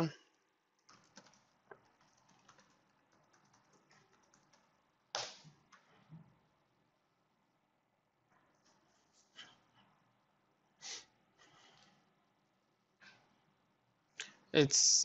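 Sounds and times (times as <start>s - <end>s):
computer mouse clicks: 0.8s - 5.9s.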